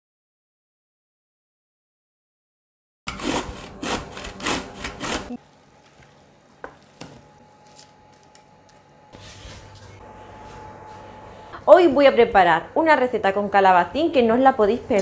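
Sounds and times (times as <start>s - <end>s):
zucchini grating on metal grater: 3.1s - 5.4s.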